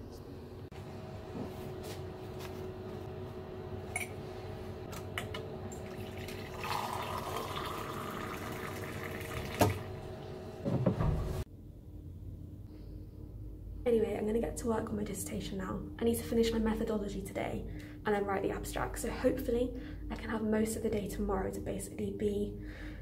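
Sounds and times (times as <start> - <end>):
steady hum: 0.0 - 23.0
hot water tap filling mug: 5.8 - 9.9.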